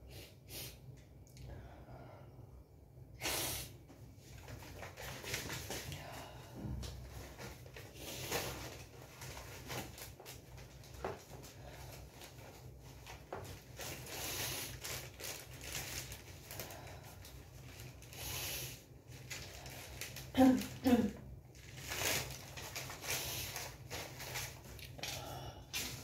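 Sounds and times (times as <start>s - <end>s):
paper slips rustling and crinkling: 19.1s - 25.0s.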